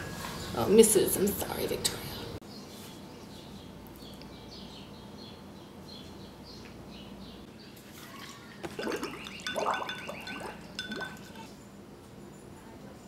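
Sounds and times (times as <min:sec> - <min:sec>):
gurgling through drinking straw: 0:08.1 - 0:11.5.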